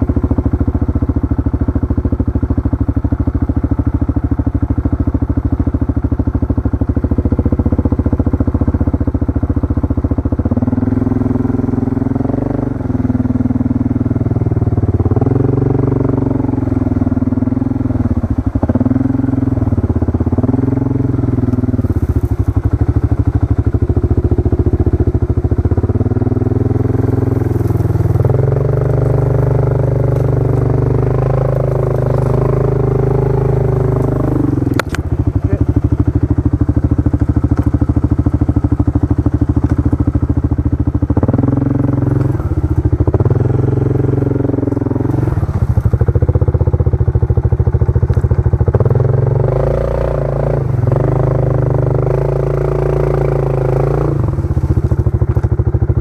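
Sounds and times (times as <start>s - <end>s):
atv engine revving: 0.0s - 56.0s.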